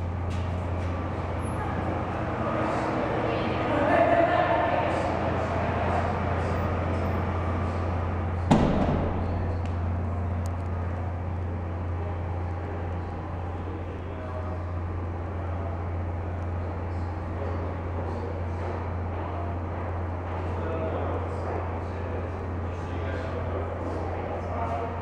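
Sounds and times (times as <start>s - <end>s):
low hum: 0.0s - 20.4s
faint murmur: 0.0s - 25.0s
sharp knock: 8.5s - 9.6s.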